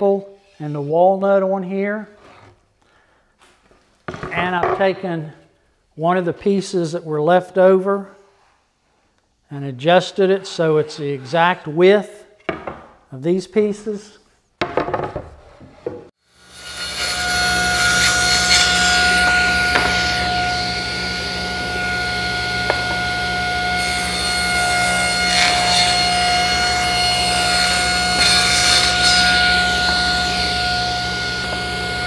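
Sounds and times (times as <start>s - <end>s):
table saw cutting wood: 16.3s - 32.0s.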